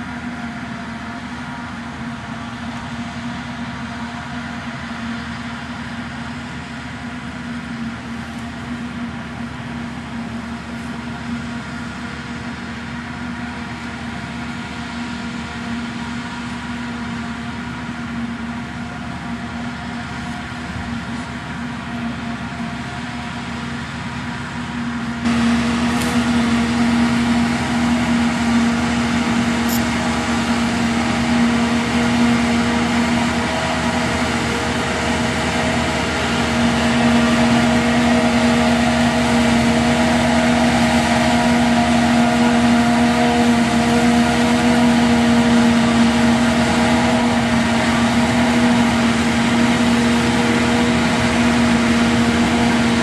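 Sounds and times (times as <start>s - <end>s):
tractor running: 0.0s - 53.0s
forage harvester chopping maize: 25.3s - 26.6s.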